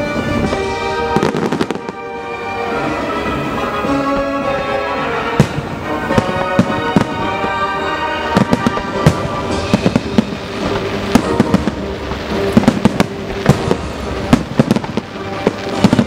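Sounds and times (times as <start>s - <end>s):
background music: 0.0s - 16.0s
fireworks bursting: 0.0s - 16.0s.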